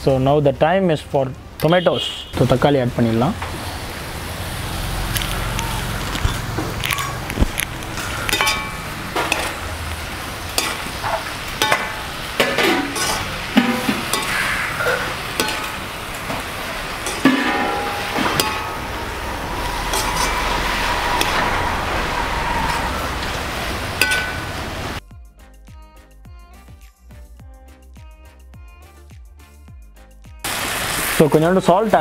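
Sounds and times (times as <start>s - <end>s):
vegetables sizzling in a pan: 3.4s - 25.0s, 30.5s - 32.0s
metal ladle scraping and clinking: 6.2s - 23.4s, 24.0s - 24.5s.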